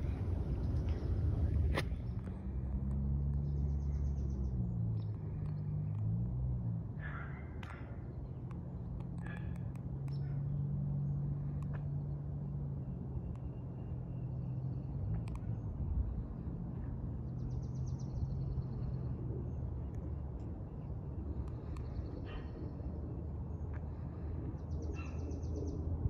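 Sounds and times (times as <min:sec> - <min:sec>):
steady low hum: 0:00.0 - 0:06.0
short bird calls: 0:24.7 - 0:25.8.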